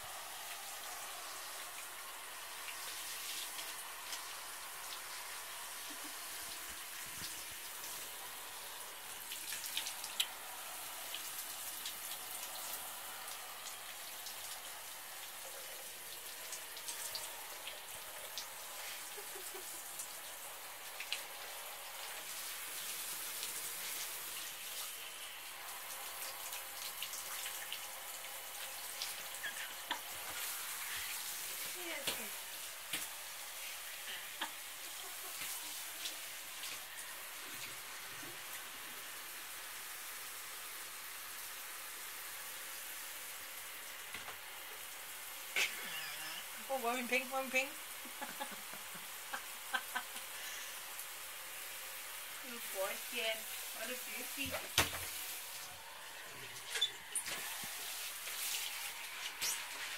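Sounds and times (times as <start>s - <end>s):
shower water spraying: 0.0s - 59.9s
small drips and taps: 9.3s - 10.4s, 20.9s - 21.3s, 32.9s - 33.1s.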